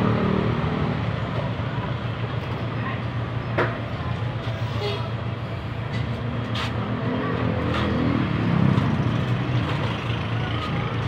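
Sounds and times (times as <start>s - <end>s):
vehicle engine humming: 0.0s - 11.0s.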